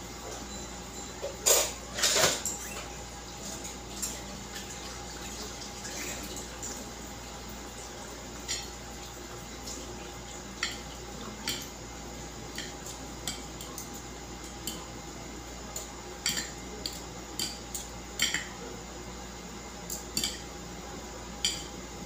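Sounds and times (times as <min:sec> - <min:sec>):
faint steady hum: 0:00.0 - 0:22.0
fork and chopsticks clinking on plates: 0:16.2 - 0:18.5, 0:19.9 - 0:20.4.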